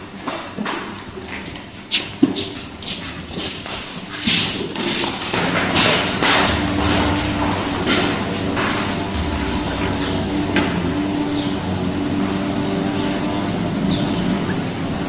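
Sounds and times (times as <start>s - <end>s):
low rumble: 6.2s - 13.5s.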